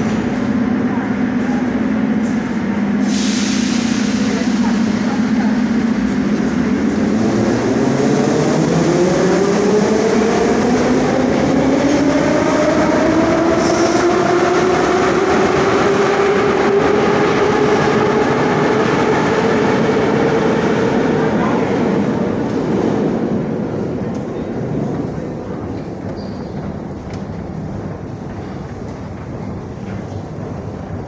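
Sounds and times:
train rumble: 0.0 - 31.0.

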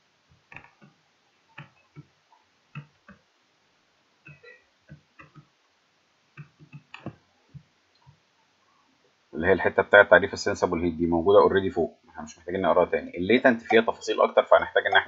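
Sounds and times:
computer mouse clicks: 6.4 - 7.2.

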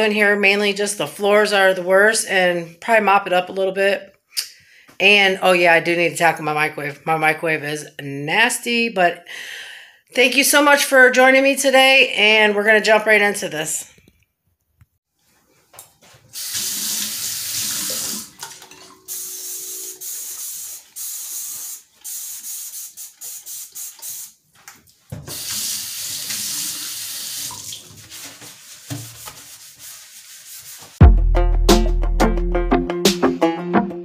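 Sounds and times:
water splashing in basin: 16.4 - 21.0, 24.9 - 29.0
faucet running into steel sink: 16.4 - 24.2, 25.3 - 27.9
loud music: 31.0 - 34.0.

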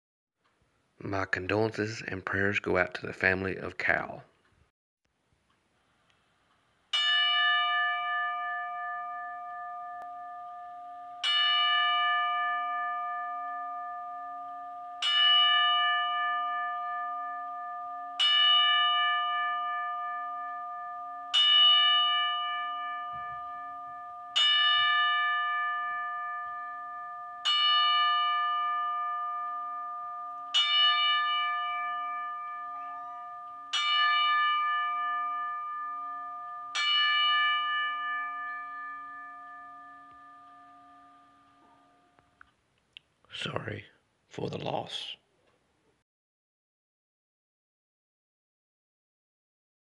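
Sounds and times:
bell tolling: 7.0 - 42.2.

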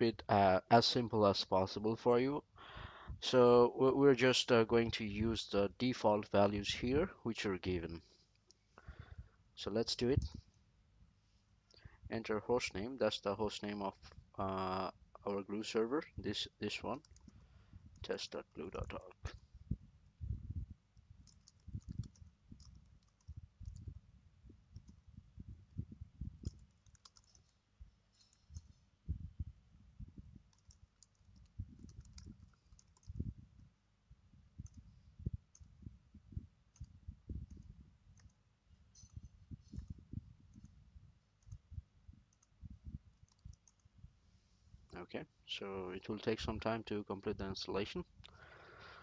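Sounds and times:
typing on computer keyboard: 21.2 - 23.9, 26.4 - 27.6, 30.5 - 33.2, 43.2 - 43.8.

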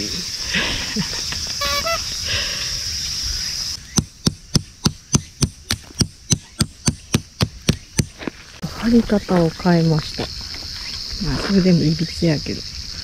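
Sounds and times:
insects buzzing: 0.0 - 13.0
stake hammered into gravel: 3.9 - 8.3.

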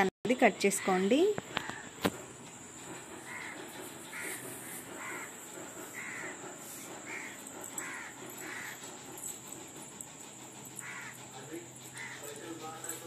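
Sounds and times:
bird calling: 2.8 - 13.0.

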